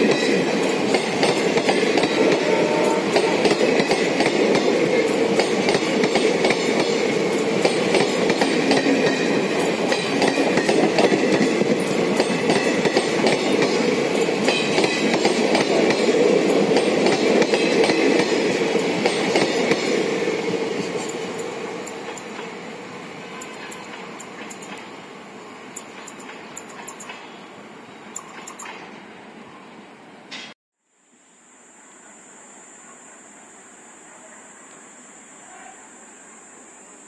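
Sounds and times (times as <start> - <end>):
train wheels rumbling on rail: 0.0 - 27.4, 28.1 - 29.0.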